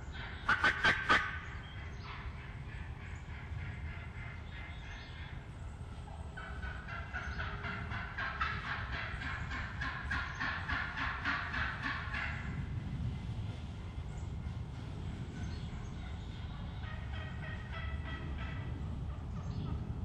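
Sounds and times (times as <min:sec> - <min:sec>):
low wind rumble: 0:00.0 - 0:20.0
turkey yelping: 0:00.5 - 0:01.4.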